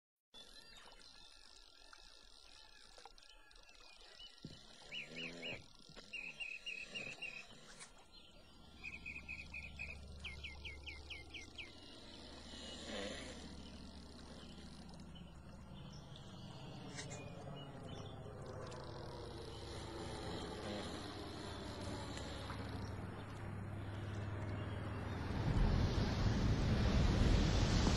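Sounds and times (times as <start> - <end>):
bird chirping in trills: 0.4 - 12.9
propeller aircraft drone: 2.1 - 27.9.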